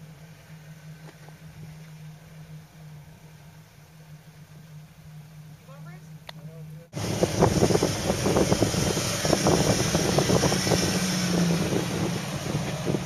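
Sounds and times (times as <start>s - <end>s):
engine running low: 0.0s - 13.0s
wind buffeting on microphone: 7.0s - 13.0s.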